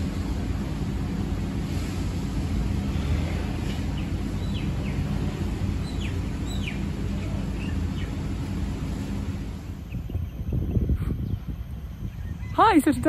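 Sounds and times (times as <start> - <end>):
city traffic rumble: 0.0 - 13.0
bird chirping: 3.7 - 8.8, 9.8 - 13.0.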